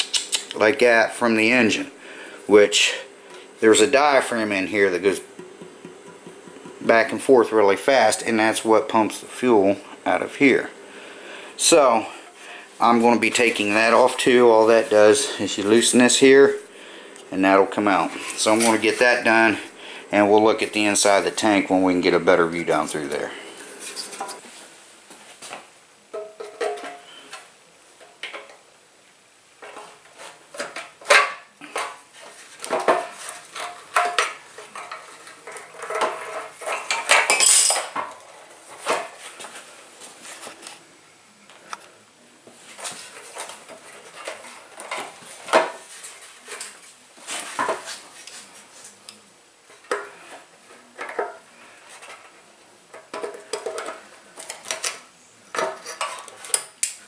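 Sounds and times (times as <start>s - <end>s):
hand tools clinking on metal: 36.6s - 38.0s.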